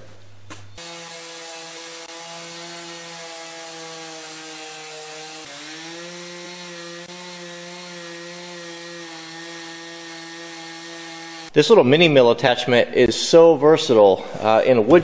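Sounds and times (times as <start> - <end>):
chainsaw cutting timber: 0.8 - 11.6.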